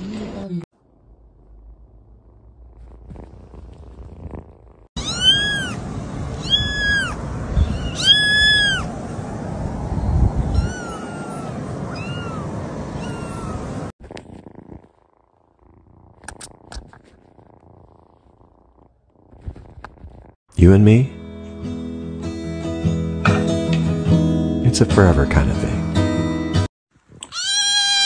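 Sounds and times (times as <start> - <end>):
kitten mewing: 2.7 - 8.9, 10.5 - 14.8, 27.2 - 28.0
small clicks: 16.2 - 17.2.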